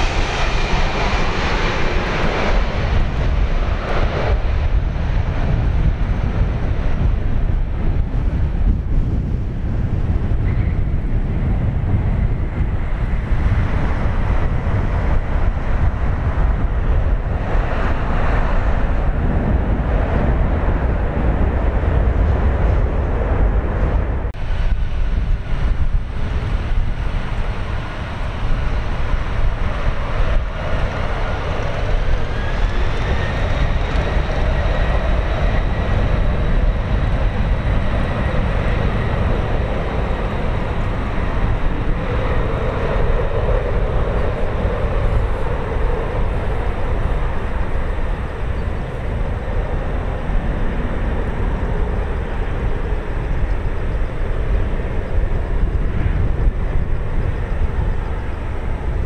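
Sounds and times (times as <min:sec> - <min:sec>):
jet engine rumble with whine: 0:00.0 - 0:59.0.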